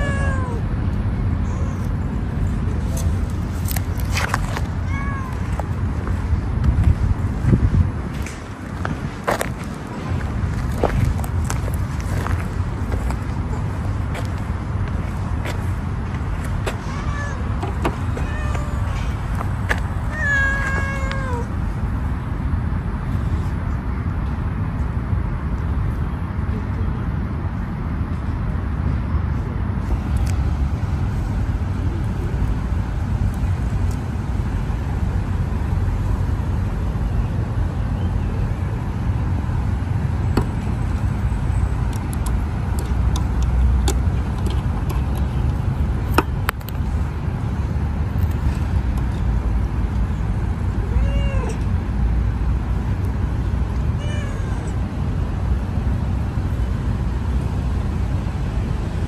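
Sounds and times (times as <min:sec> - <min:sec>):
kitten meowing: 0:00.0 - 0:00.6, 0:04.8 - 0:05.5, 0:16.8 - 0:19.1, 0:20.0 - 0:21.5, 0:50.8 - 0:51.6, 0:54.0 - 0:54.8.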